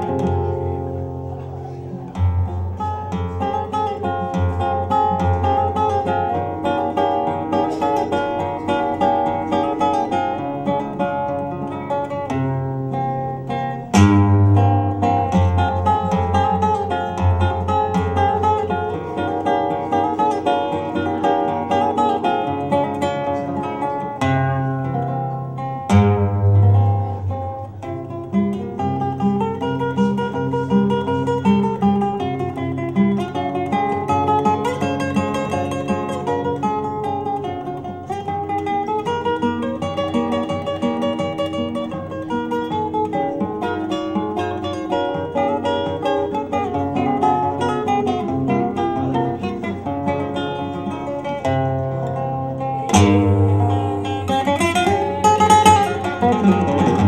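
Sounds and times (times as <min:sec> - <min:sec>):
flamenco guitar playing: 0:00.0 - 0:57.0
loud strummed guitar chord: 0:50.2 - 0:57.0.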